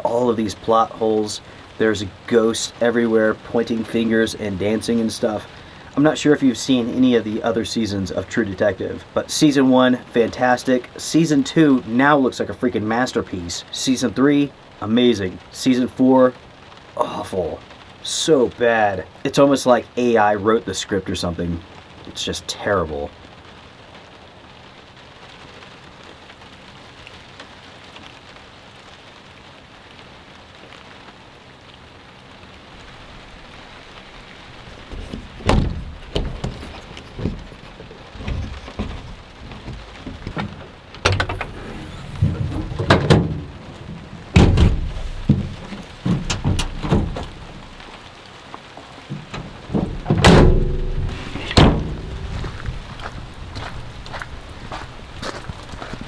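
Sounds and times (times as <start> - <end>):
steady rain: 0.0 - 56.0
loud thumps and knocks: 34.8 - 47.8, 49.0 - 53.1.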